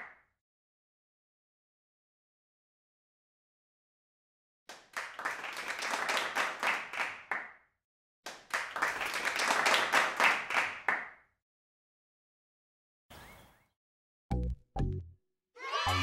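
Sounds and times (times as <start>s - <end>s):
small group clapping: 4.7s - 7.6s, 8.2s - 11.2s.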